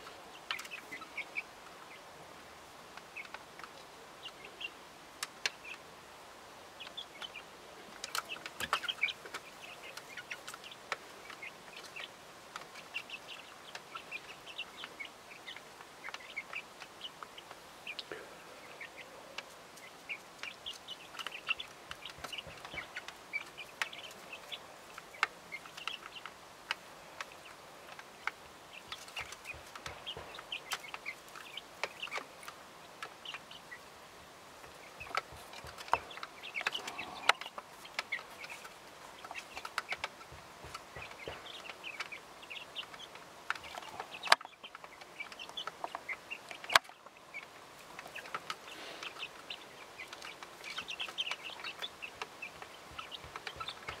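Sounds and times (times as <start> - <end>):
hens clucking softly: 34.6 - 54.0.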